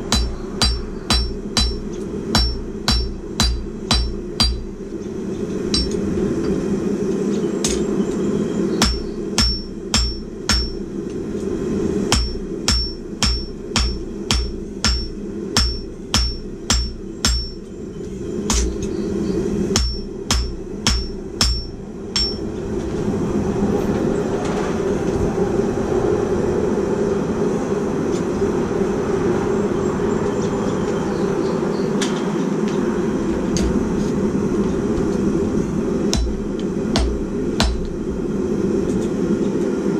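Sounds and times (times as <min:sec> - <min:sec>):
hammer ringing on anvil: 0:00.1 - 0:04.7, 0:05.7 - 0:06.0, 0:08.8 - 0:10.8, 0:12.1 - 0:17.6, 0:19.8 - 0:22.5.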